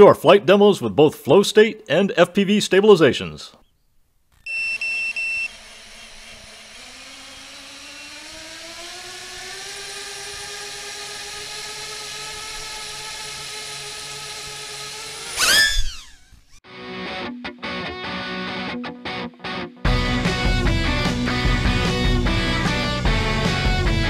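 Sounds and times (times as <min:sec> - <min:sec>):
short electronic beeps: 0:04.4 - 0:05.5
drone motors whining: 0:04.4 - 0:16.6.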